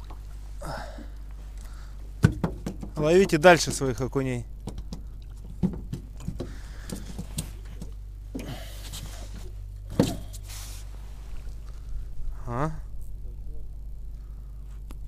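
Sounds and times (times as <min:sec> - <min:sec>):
steady low hum: 0:00.0 - 0:15.0
knocks in metal boat: 0:02.2 - 0:03.0, 0:05.6 - 0:07.3.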